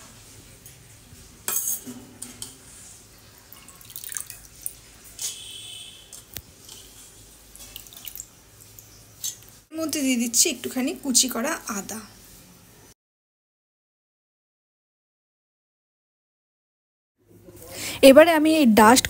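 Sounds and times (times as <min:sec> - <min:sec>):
water splashing and dripping: 0:03.2 - 0:09.7.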